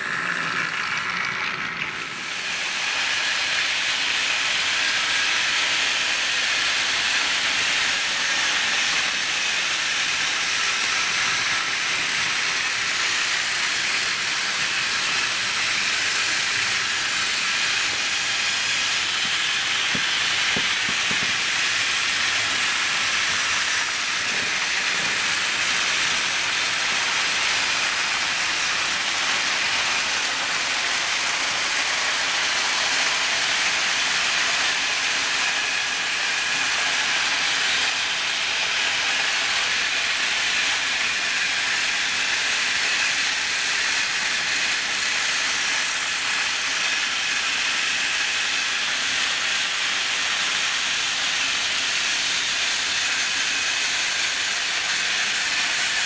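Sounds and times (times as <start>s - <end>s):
toy train motors whirring: 0.0s - 56.0s
wheels rattling on track: 17.4s - 26.5s.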